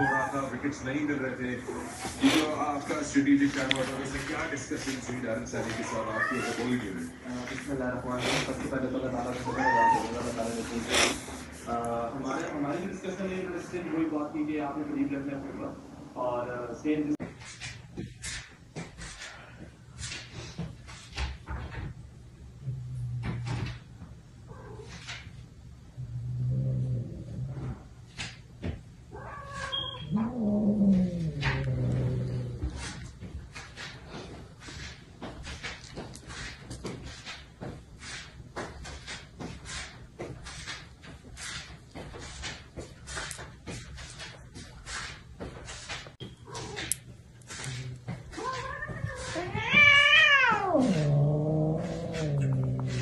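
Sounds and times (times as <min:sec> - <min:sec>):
cat making long low calls: 0:30.1 - 0:32.7, 0:48.7 - 0:53.0.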